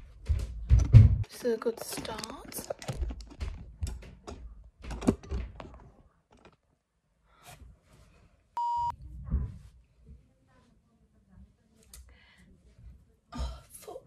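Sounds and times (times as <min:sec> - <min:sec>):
censor bleep: 0:08.6 - 0:09.0.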